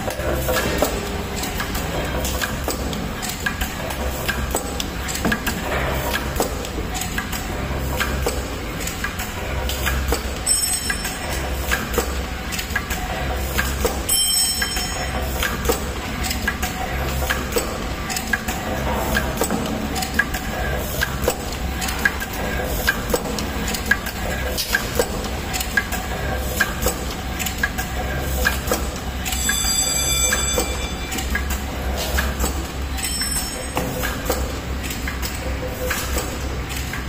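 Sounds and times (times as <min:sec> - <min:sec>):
packing machine clicks and knocks: 0:00.0 - 0:29.4.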